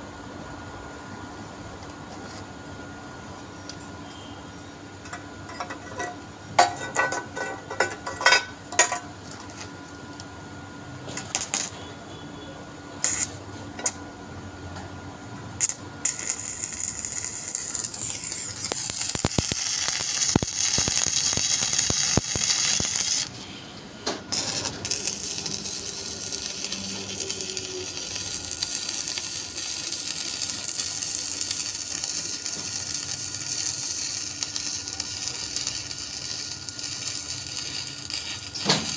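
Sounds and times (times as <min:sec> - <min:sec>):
welding arc hissing and crackling: 0:11.3 - 0:11.8, 0:13.0 - 0:13.4, 0:15.5 - 0:23.4, 0:24.3 - 0:38.9.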